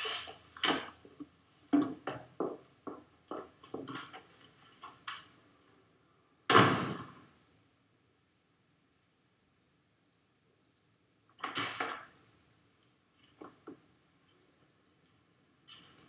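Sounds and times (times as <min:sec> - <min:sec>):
loud thud: 0:06.5 - 0:07.2.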